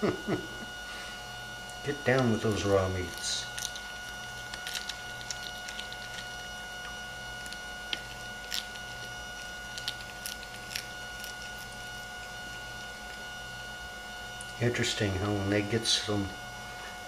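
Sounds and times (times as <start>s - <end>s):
faint steady hum: 0.0s - 17.0s
cat chewing bone: 3.0s - 12.2s.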